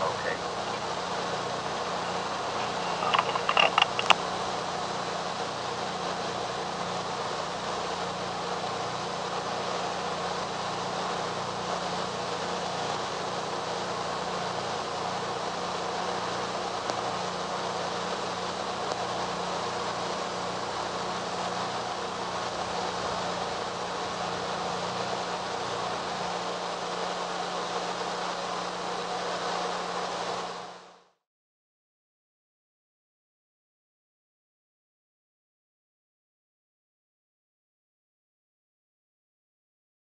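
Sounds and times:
steady film hiss: 0.0s - 31.2s.

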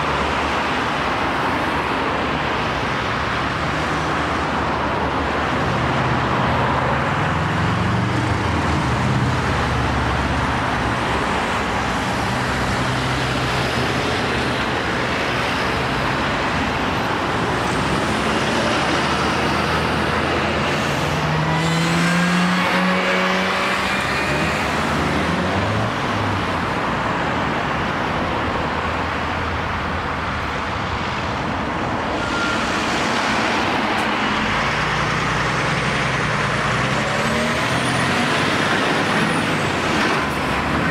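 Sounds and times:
cars passing close by: 0.0s - 40.9s
lorry diesel engine: 0.0s - 40.9s
engine revving: 17.9s - 25.8s, 34.4s - 40.8s.

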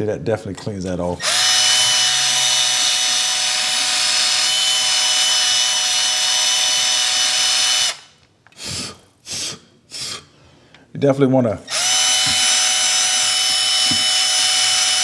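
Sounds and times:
power screwdriver whining: 1.2s - 8.8s, 11.7s - 15.0s.

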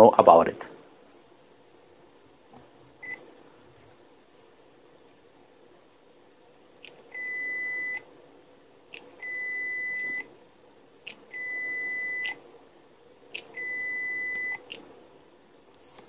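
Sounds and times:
multimeter continuity beeps: 3.0s - 3.2s, 6.8s - 8.1s, 8.9s - 10.3s, 11.1s - 12.4s, 13.3s - 14.8s.

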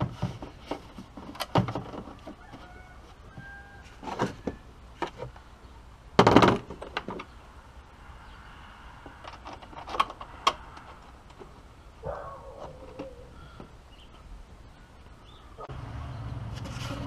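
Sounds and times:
plastic parts knocking and clicking: 0.0s - 2.4s.

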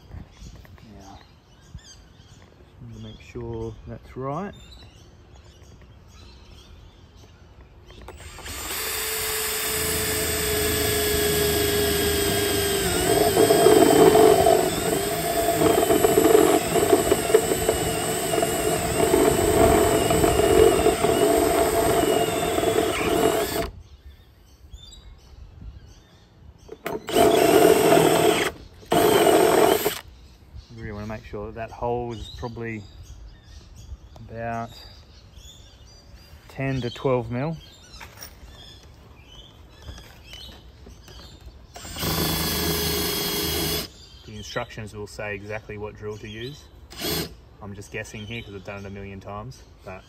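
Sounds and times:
cordless drill boring plastic: 8.0s - 23.8s, 26.7s - 30.0s, 41.8s - 44.0s, 46.9s - 47.4s.

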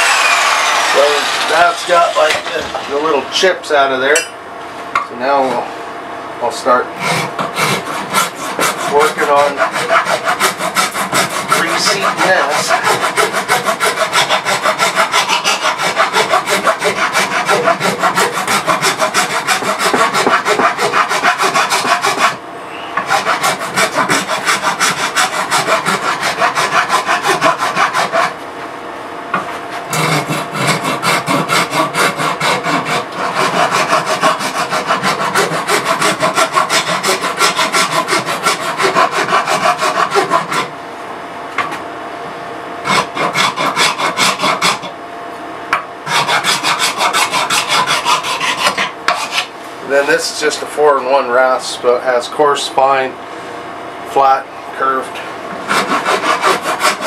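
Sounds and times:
rasp filing wood: 0.0s - 3.5s, 7.0s - 22.4s, 23.0s - 28.4s, 29.7s - 40.7s, 42.8s - 44.9s, 46.1s - 50.1s, 55.7s - 57.0s.

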